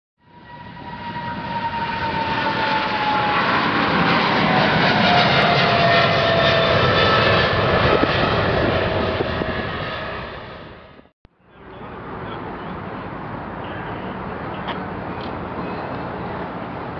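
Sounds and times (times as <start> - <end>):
whining engine tones: 0.2 - 13.1
jet airliner roar: 0.2 - 16.9.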